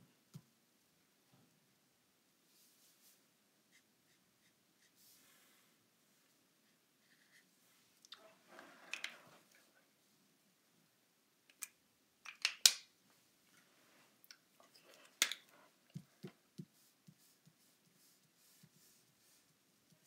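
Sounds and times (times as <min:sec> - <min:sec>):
marker clicks: 0:11.5 - 0:12.9.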